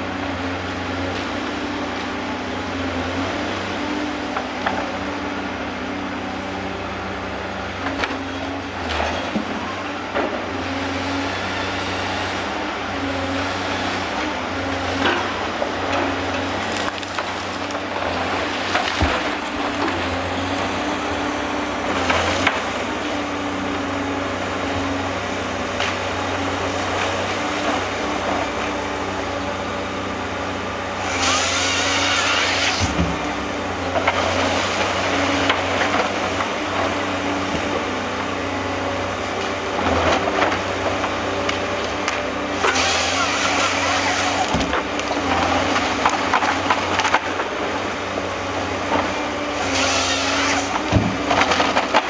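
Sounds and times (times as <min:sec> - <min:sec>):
diesel engine under load: 0:00.0 - 0:52.0
hydraulics whining: 0:07.6 - 0:52.0
chainsaw cutting log: 0:30.9 - 0:33.4, 0:40.1 - 0:47.8, 0:49.0 - 0:52.0.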